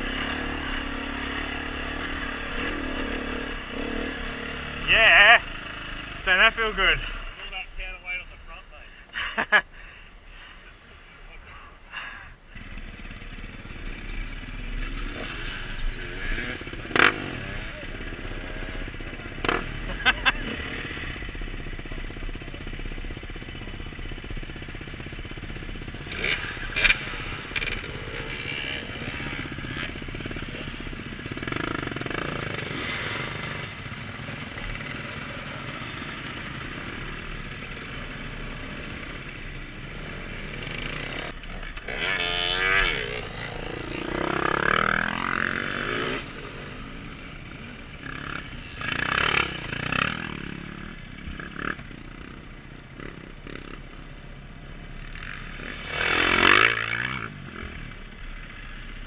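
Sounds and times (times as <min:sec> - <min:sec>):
dirt bike engines revving: 0:00.0 - 0:59.0
bikes accelerating past: 0:12.5 - 0:54.0.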